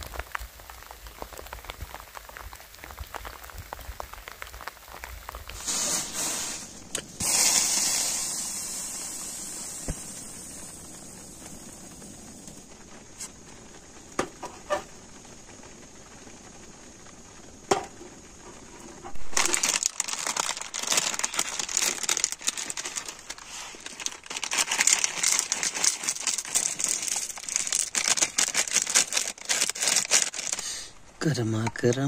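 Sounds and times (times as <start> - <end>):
faint steady hiss: 0.0 - 32.0
foil packet crinkling: 19.1 - 32.0.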